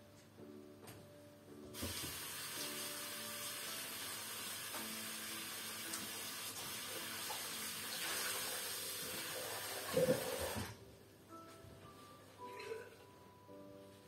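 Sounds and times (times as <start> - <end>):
tap water running into sink: 1.8 - 10.7.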